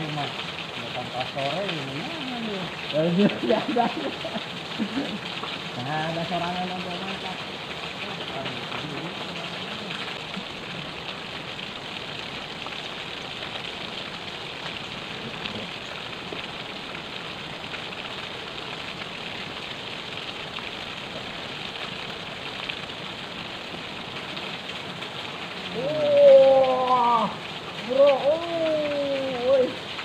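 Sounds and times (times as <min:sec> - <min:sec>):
river water flowing over rocks: 0:00.0 - 0:30.0.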